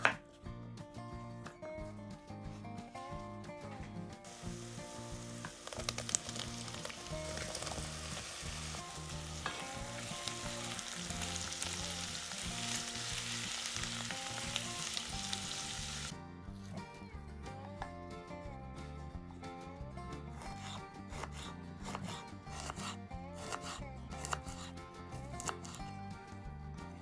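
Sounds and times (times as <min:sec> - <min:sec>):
background music: 0:00.0 - 0:27.0
vegetables sizzling in oil: 0:04.3 - 0:16.1.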